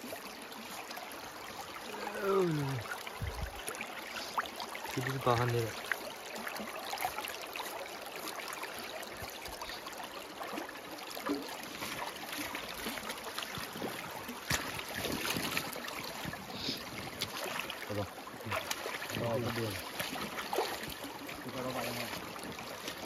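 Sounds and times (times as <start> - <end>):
creek running over rocks: 0.0 - 23.0
splashes and knocks: 11.2 - 23.0.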